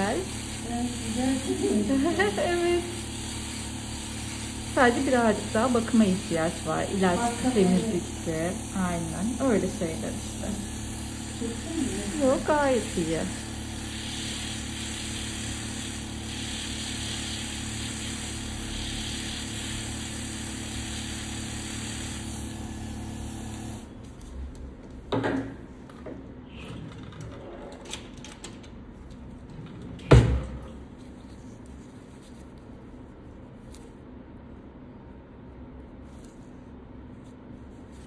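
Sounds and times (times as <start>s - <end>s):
electric nail drill running: 0.0s - 23.9s.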